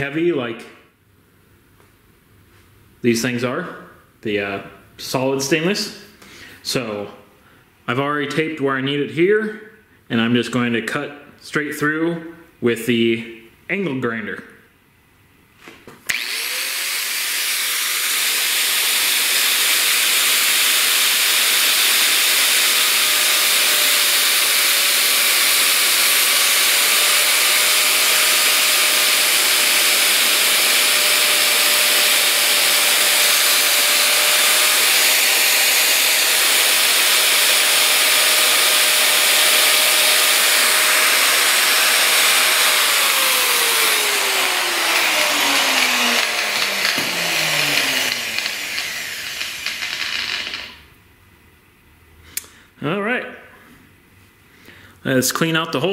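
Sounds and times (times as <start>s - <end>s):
angle grinder cutting hose: 16.1s - 50.8s.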